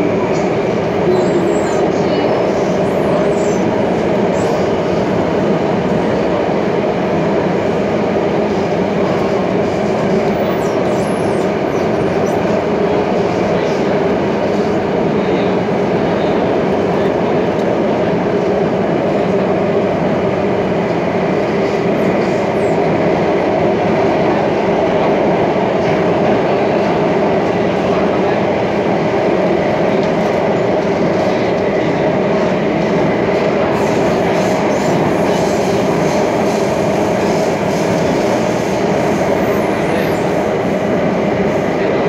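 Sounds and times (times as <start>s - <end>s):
metro train interior rumble: 0.0s - 42.0s.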